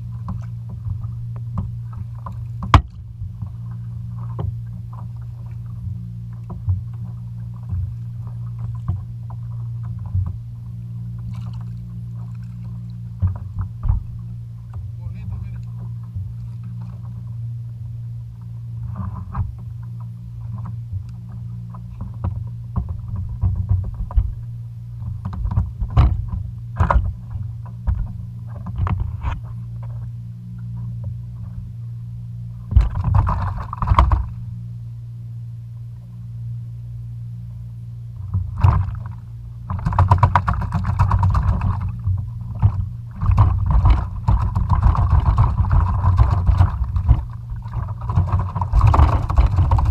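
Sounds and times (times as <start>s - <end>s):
steady low rumble: 0.0s - 49.9s
fish thrashing on plastic deck: 42.6s - 49.9s.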